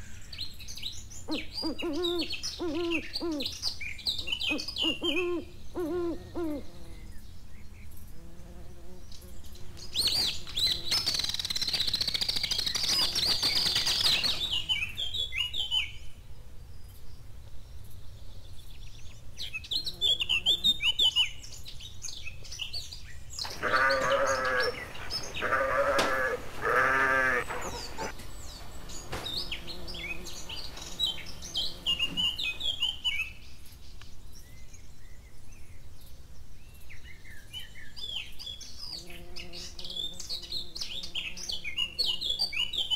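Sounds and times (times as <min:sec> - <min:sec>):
birds chirping: 0:00.0 - 0:08.2, 0:16.8 - 0:36.1
farm animal bleating: 0:23.5 - 0:28.1.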